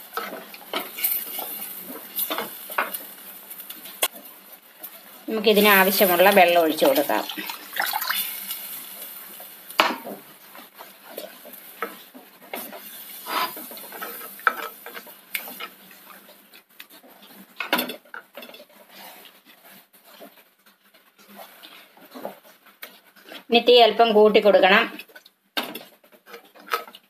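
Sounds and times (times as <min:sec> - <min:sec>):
liquid sloshing: 0:07.3 - 0:08.3.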